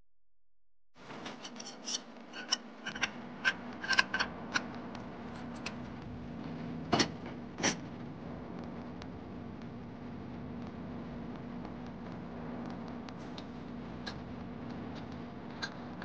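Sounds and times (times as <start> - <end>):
steady low hum: 1.0 - 16.0.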